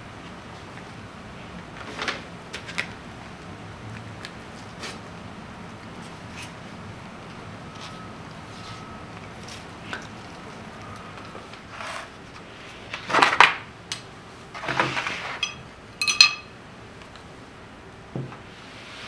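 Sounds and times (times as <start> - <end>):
chopsticks clinking on a plate: 15.3 - 16.5.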